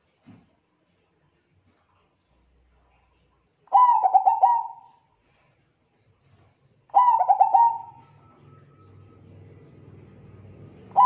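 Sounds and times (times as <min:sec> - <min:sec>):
dove cooing: 0:03.7 - 0:05.0, 0:06.9 - 0:09.1.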